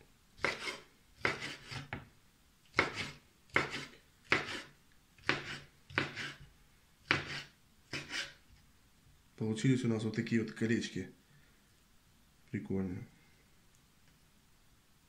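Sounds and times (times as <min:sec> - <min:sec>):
knife slicing on wooden board: 0:00.4 - 0:02.0, 0:02.7 - 0:08.4.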